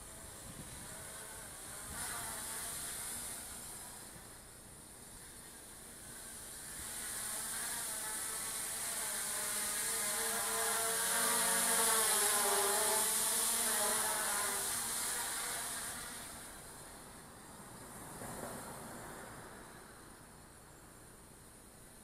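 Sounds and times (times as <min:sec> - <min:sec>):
drone propellers buzzing: 0:00.0 - 0:04.5, 0:05.1 - 0:17.1.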